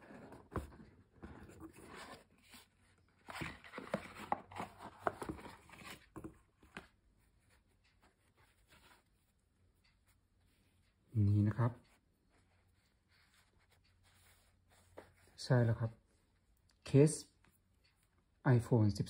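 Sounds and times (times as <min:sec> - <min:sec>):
cardboard box rustling and scraping: 0:00.0 - 0:06.5.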